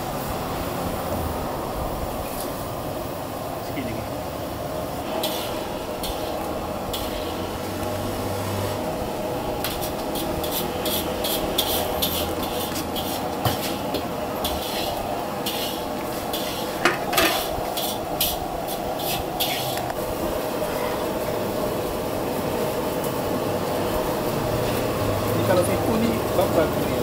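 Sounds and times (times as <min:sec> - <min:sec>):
gas burner roaring: 0:00.0 - 0:27.0
metal utensils clattering on wok: 0:09.6 - 0:19.9.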